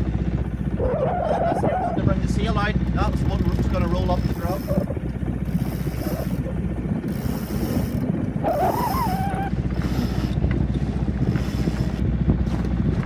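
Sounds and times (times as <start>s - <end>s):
boat engine droning: 0.0s - 13.0s
sail unfurling: 0.1s - 13.0s
wavering rope squeal: 0.7s - 2.1s, 4.4s - 10.4s
rope on winch: 0.7s - 13.0s.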